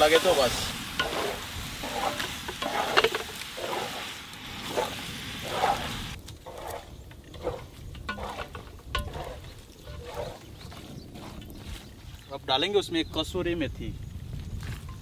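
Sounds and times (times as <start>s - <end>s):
meat sizzling in a pot: 0.0s - 6.2s
spatula scraping a pot: 0.0s - 11.7s.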